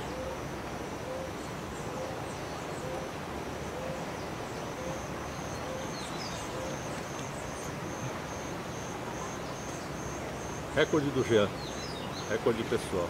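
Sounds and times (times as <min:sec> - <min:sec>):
steady hiss: 0:00.0 - 0:13.0
insect chirping: 0:03.7 - 0:12.4.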